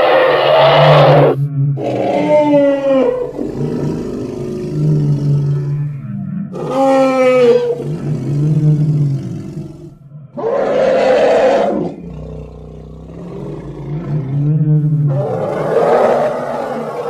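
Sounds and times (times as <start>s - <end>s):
creature roaring: 0.0s - 5.9s, 6.5s - 17.0s
low growls: 0.0s - 17.0s
low rumble: 0.8s - 6.6s.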